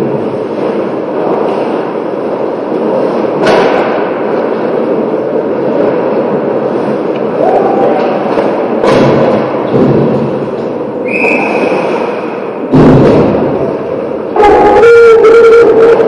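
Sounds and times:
skates scraping on ice: 0:00.0 - 0:14.5
loud hard impact: 0:03.4 - 0:04.3, 0:08.3 - 0:13.9.

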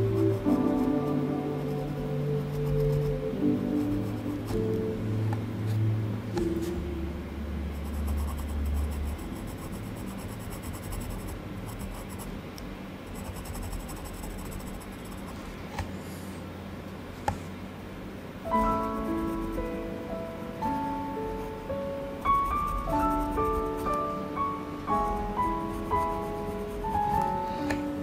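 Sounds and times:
low background music note: 0:00.0 - 0:12.0, 0:18.4 - 0:28.0
pencil scratching on paper: 0:07.7 - 0:12.3, 0:13.1 - 0:15.5, 0:22.4 - 0:23.9, 0:25.1 - 0:27.4.

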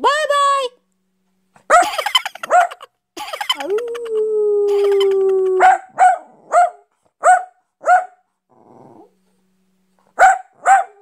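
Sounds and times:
quiet rustle: 0:00.8 - 0:01.8
dog barking: 0:01.6 - 0:02.9, 0:05.6 - 0:08.2, 0:10.2 - 0:11.0.

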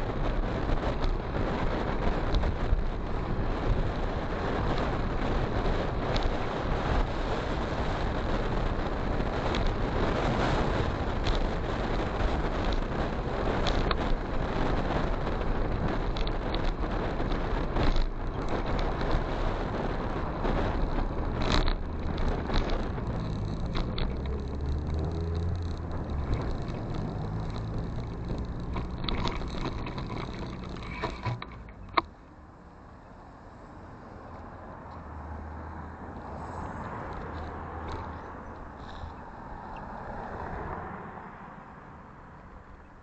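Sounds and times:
wind rush on microphone: 0:00.0 - 0:32.1
motorcycle engine: 0:21.0 - 0:32.0.

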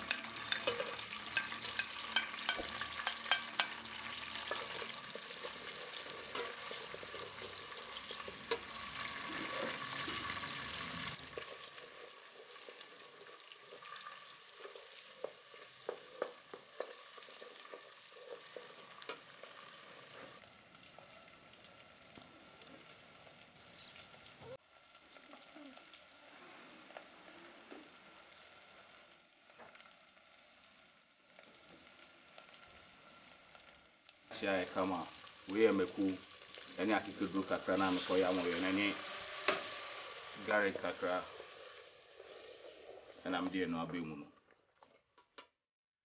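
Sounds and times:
wooden spoon stirring pot clicks: 0:00.0 - 0:03.8
onions sizzling in hot oil: 0:00.0 - 0:45.6.

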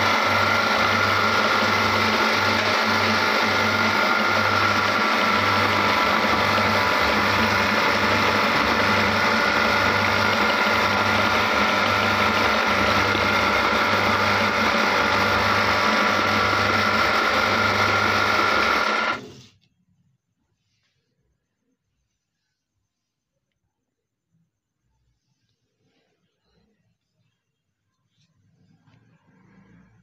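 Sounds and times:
meat grinder whirring: 0:00.0 - 0:19.5.

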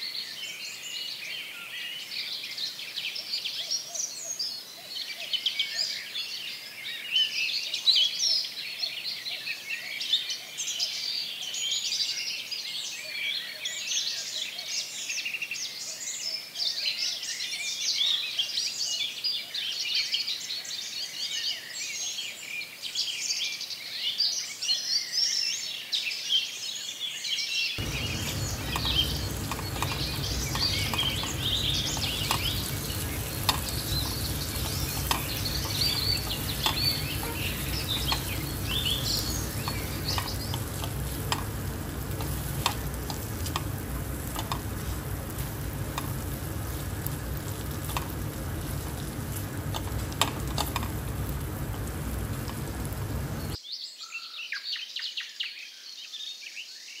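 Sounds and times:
spoon clicking against pan: 0:27.8 - 0:53.3
birds chirping: 0:27.8 - 0:53.6
chicken sizzling in a pan: 0:27.8 - 0:53.6.

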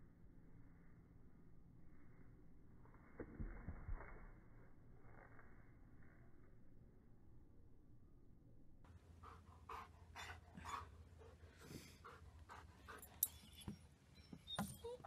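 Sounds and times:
dog panting softly: 0:09.2 - 0:13.2.

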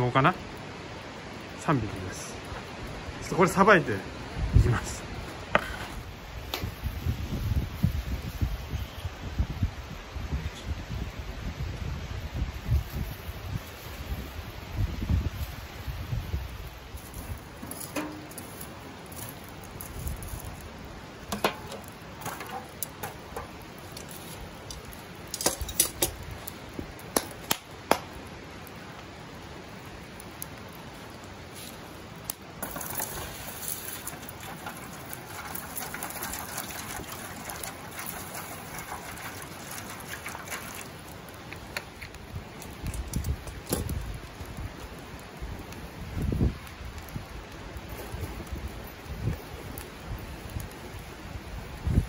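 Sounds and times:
wood clicking and knocking: 0:17.6 - 0:18.6, 0:21.3 - 0:24.1
water pouring into foil pan: 0:32.6 - 0:43.2.

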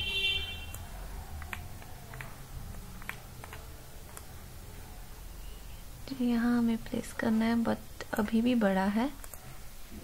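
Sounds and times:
low steady hum: 0:00.0 - 0:10.0
computer mouse clicks: 0:00.7 - 0:04.3, 0:08.1 - 0:08.4, 0:09.2 - 0:09.6.

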